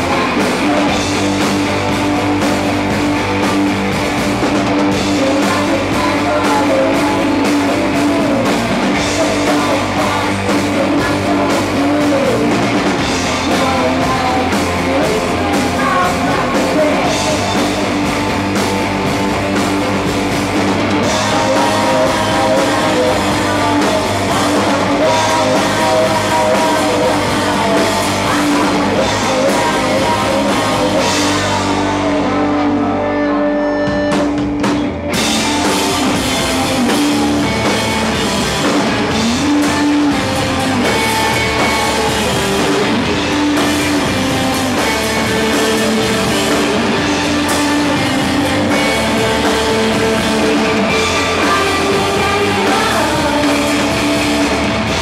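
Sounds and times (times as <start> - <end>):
woman singing: 0.0 - 1.4, 4.9 - 17.9, 21.0 - 33.9, 39.1 - 55.0
drum kit: 0.0 - 55.0
electric guitar: 0.0 - 55.0.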